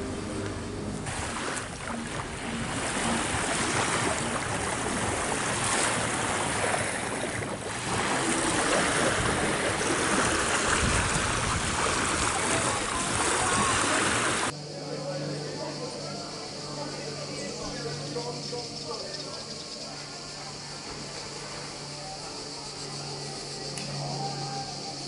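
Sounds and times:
small waves washing onto beach: 0:00.0 - 0:14.5.

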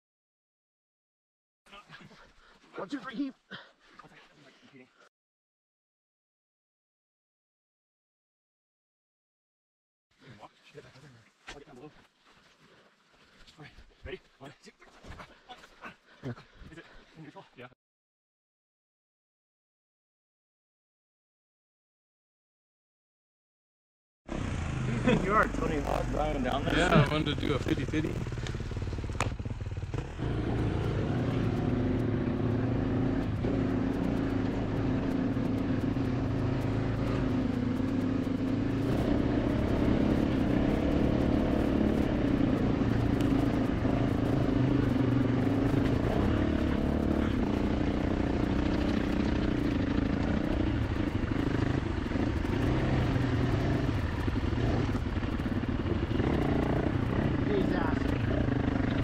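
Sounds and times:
dirt bike engine running: 0:24.3 - 0:59.0.

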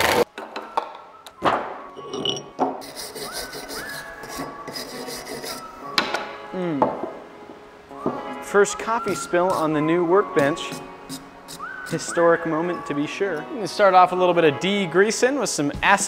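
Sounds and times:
wire brush scrubbing metal: 0:02.8 - 0:05.7, 0:09.0 - 0:12.2.

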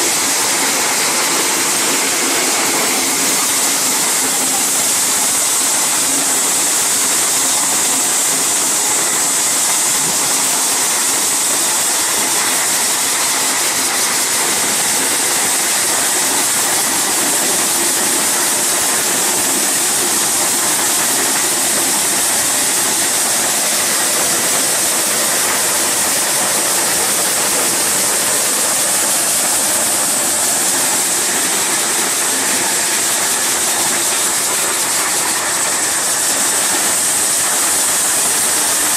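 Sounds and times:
grain streaming out: 0:11.8 - 0:38.9.

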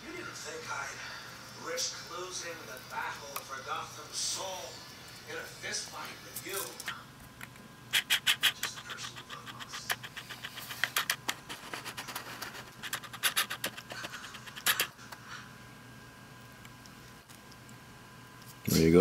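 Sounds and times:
claws clicking on hardwood floor: 0:08.0 - 0:14.9.

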